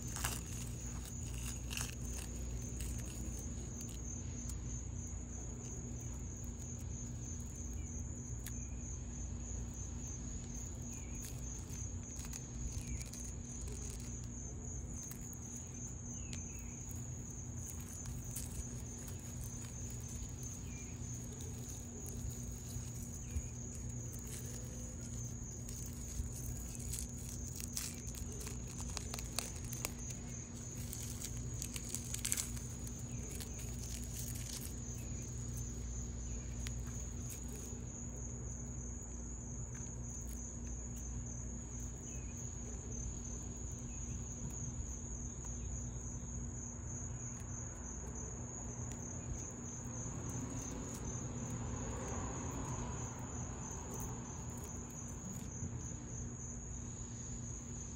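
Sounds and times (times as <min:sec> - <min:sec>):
shed skin crinkling: 0:00.0 - 0:04.6, 0:10.0 - 0:38.0
insects trilling: 0:00.0 - 0:57.9.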